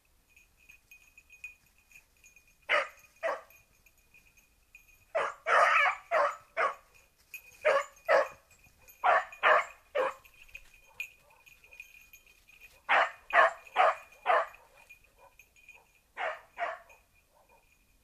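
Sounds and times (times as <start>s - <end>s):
hound barking: 2.7s - 3.5s, 5.1s - 6.9s, 7.6s - 12.0s, 12.7s - 17.8s.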